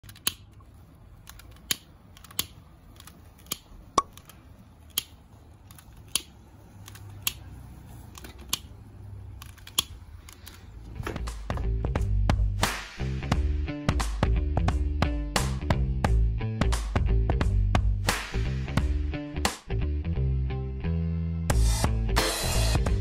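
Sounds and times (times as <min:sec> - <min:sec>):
lighter wand clicks: 0:01.3 - 0:08.8.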